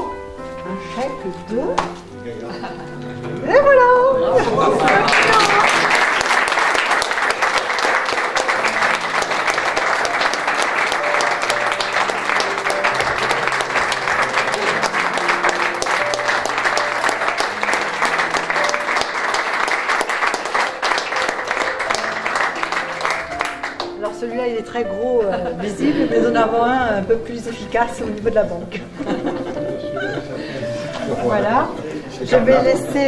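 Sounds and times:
music playing: 0.0s - 33.0s
people applauding: 4.2s - 24.2s.

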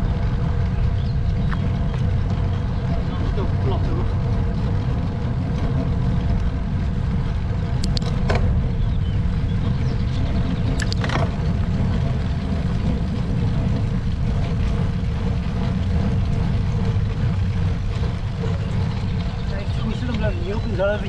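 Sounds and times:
bike clatter: 0.0s - 21.0s
bike tyres rolling on road: 0.0s - 21.0s
wind buffeting microphone: 0.0s - 21.0s.

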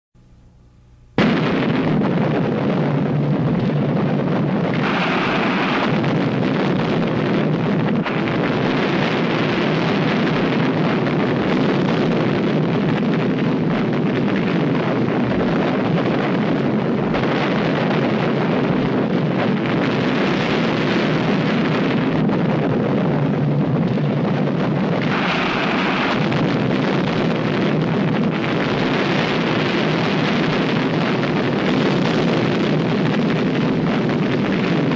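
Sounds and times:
rushing roar: 1.2s - 11.8s, 21.2s - 31.8s.

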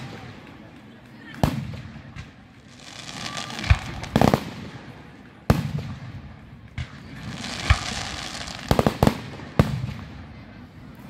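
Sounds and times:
fireworks booming: 1.4s - 10.4s
crackling sparks: 6.8s - 9.6s.

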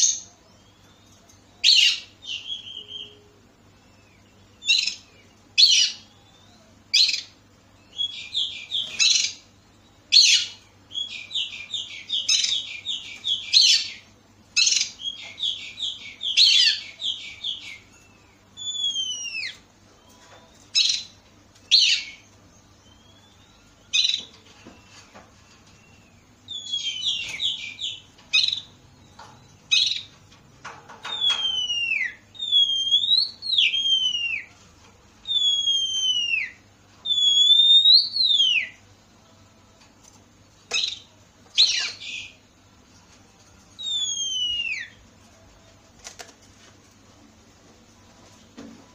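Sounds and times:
bird singing chips and trills: 0.0s - 30.2s, 30.9s - 34.6s, 35.2s - 38.8s, 40.6s - 42.4s, 43.7s - 45.1s
bird whistles falling: 31.1s - 34.5s, 43.8s - 45.0s.

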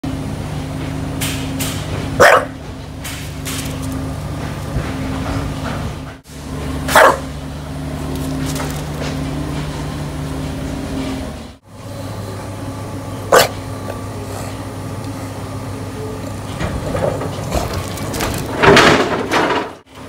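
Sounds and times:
low machine hum: 0.0s - 20.0s
dog barking: 2.2s - 2.6s, 6.9s - 7.3s, 13.3s - 13.6s.

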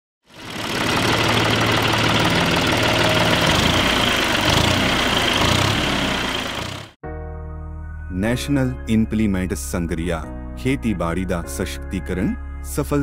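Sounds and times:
tractor engine running: 0.3s - 7.0s.

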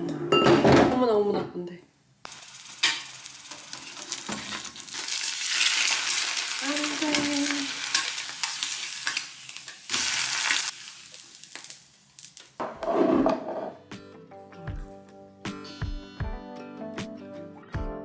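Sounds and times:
egg sizzling in oil: 2.2s - 12.6s.

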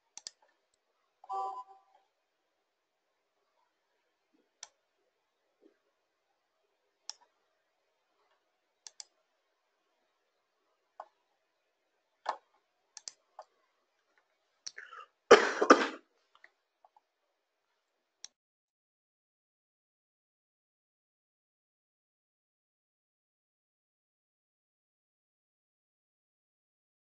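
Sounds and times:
computer mouse clicks: 0.1s - 0.6s, 4.6s - 4.8s, 8.2s - 9.2s, 12.2s - 13.6s
person coughing: 14.8s - 16.0s.

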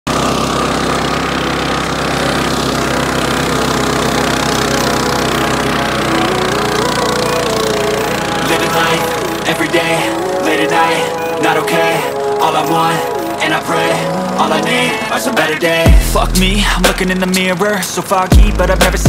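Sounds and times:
flail rotor chopping grass: 0.1s - 10.3s
mower engine running: 0.1s - 19.0s.

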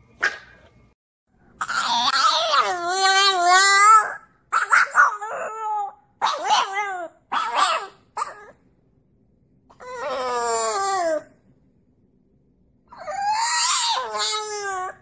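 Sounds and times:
dog howling: 1.6s - 8.6s, 9.7s - 11.3s, 12.9s - 15.0s.

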